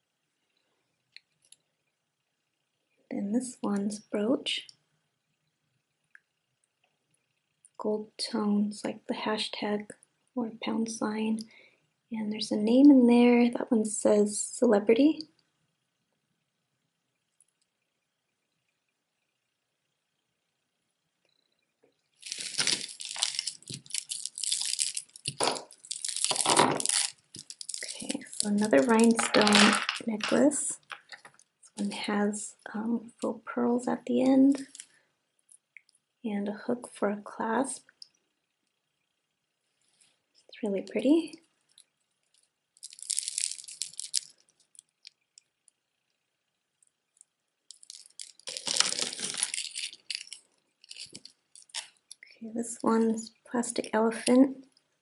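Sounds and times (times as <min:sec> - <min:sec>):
metal jewelry clinking: 0:22.2 - 0:31.2, 0:42.8 - 0:44.4, 0:47.7 - 0:51.9.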